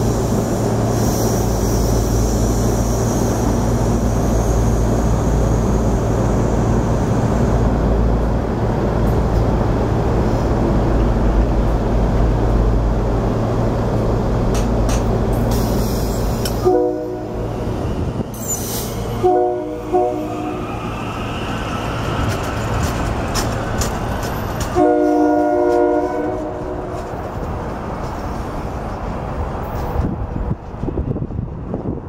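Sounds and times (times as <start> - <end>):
electric train rumbling: 0.0 - 32.0
train horn blasts: 16.6 - 17.5, 19.1 - 20.7, 24.7 - 27.0.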